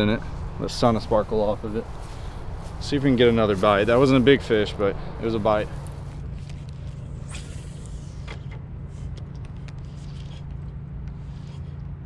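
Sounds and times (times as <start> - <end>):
steady low hum: 0.0 - 12.0
fishing reel turning: 7.2 - 8.5.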